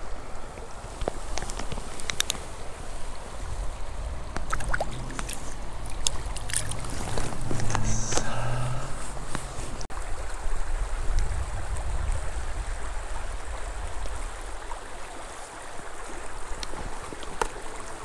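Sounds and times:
low water rumble: 0.0s - 18.0s
water flowing over stones: 0.0s - 18.0s.

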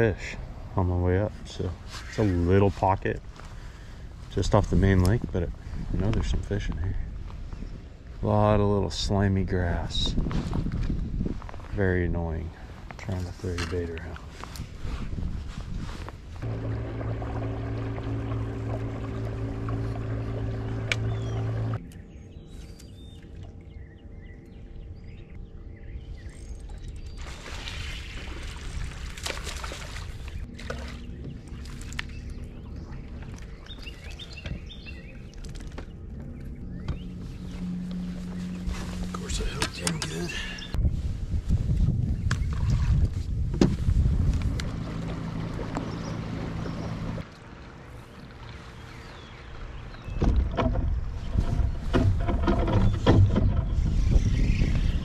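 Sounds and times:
steady low rumble: 0.0s - 27.2s, 30.3s - 55.0s
water rushing and splashing: 16.4s - 21.8s, 44.3s - 49.8s
motor hum: 16.4s - 27.2s, 30.2s - 40.8s, 44.0s - 55.0s
bird chirps: 20.7s - 27.3s, 29.6s - 40.8s
sharp clicks and knocks: 50.2s - 53.8s.

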